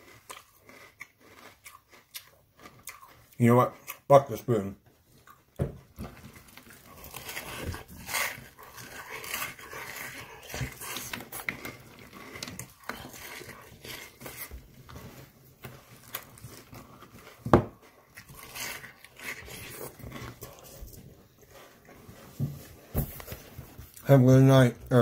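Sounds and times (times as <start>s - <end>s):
person slurping and lapping: 0.0s - 4.1s, 6.2s - 22.5s
wet chewing: 0.0s - 24.1s.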